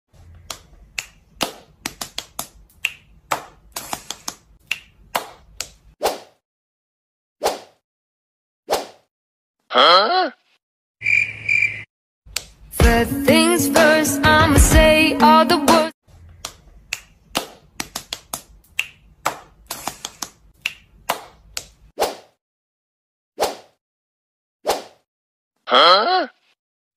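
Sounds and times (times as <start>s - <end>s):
finger snaps: 0.4s - 5.8s, 16.4s - 21.7s
sharp snapping clicks: 0.5s - 5.8s.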